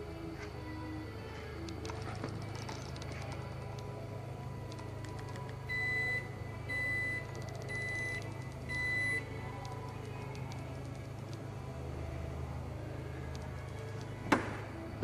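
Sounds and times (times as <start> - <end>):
liftgate warning chime beeps: 5.7 - 9.2.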